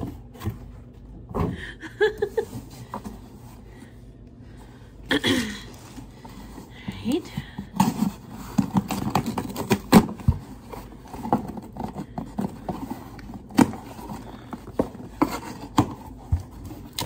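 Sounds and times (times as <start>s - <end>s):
packaging crinkling and rustling: 7.8s - 17.0s.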